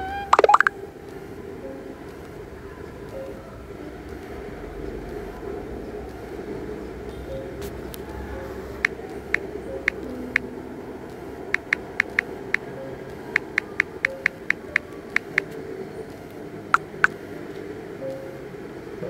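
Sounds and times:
phone keyboard clicks: 0:11.6 - 0:12.3.

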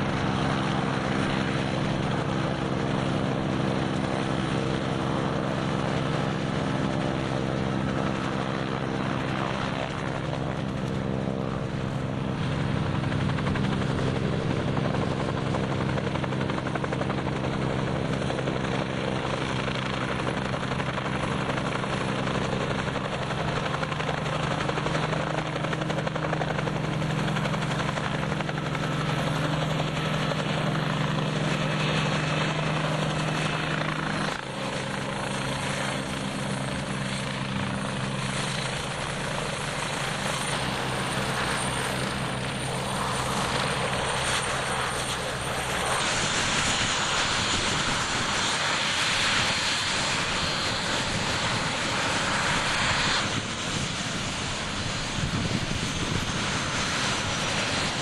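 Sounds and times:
helicopter engine and rotor drone: 0:00.0 - 0:58.0
jet engine hiss: 0:26.6 - 0:58.0.

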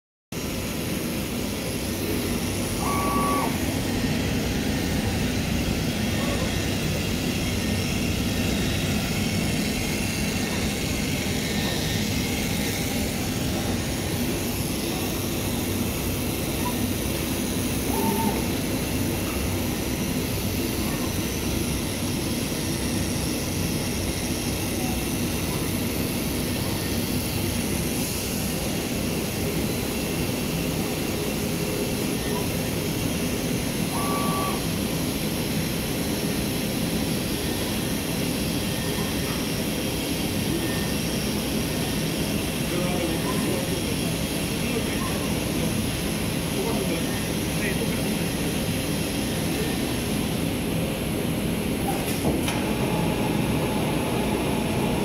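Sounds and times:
brief high tone: 0:02.8 - 0:03.7, 0:17.9 - 0:18.4, 0:33.9 - 0:34.7
cutting machine hum: 0:52.4 - 0:55.0.

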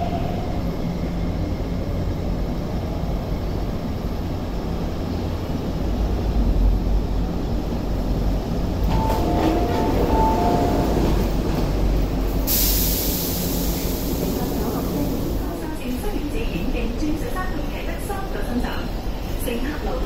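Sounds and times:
train wheels and motors rumbling: 0:00.0 - 0:20.0
two-note tone: 0:08.9 - 0:11.1
loud hiss of air: 0:12.3 - 0:15.5.

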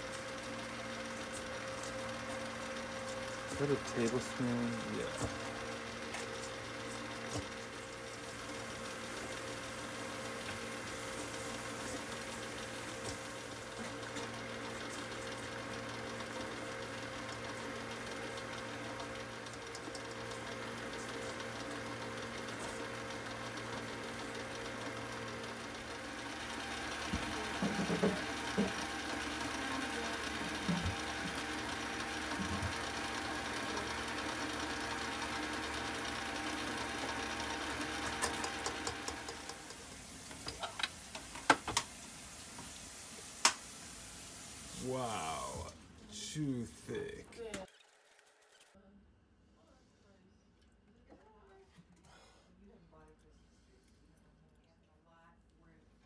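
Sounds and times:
stand mixer running: 0:00.0 - 0:42.8, 0:44.7 - 0:45.7.

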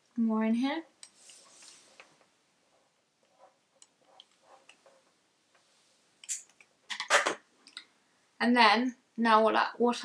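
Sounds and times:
soft rustling: 0:01.1 - 0:06.1.

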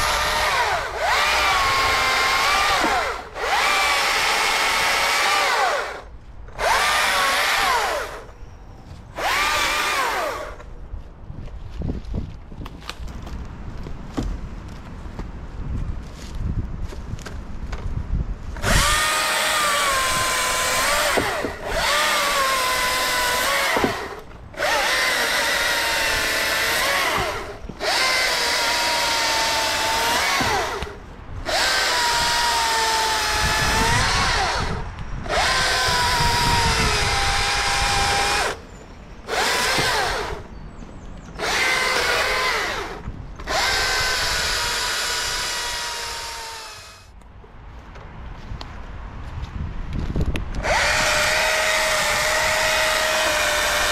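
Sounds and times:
battery chainsaw cutting: 0:00.0 - 0:08.4, 0:09.1 - 0:10.7, 0:18.6 - 0:40.5, 0:41.4 - 0:47.2, 0:50.5 - 0:53.9.

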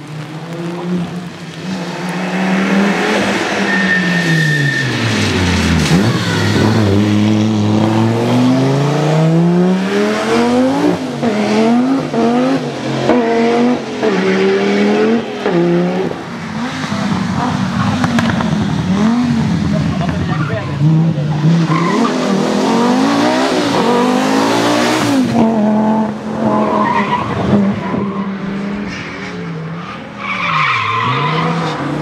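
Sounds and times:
rally car engines accelerating: 0:00.0 - 0:32.0
high whistle: 0:03.6 - 0:05.0.

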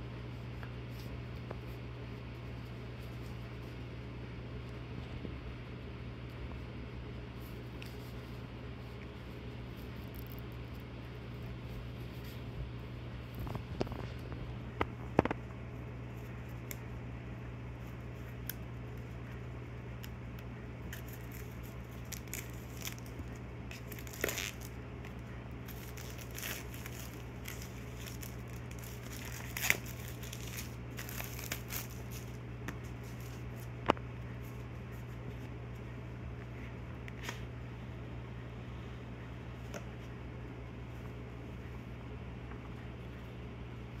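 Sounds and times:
steady low hum: 0:00.0 - 0:44.0
plastic wrap crinkling and tearing: 0:20.9 - 0:34.0.

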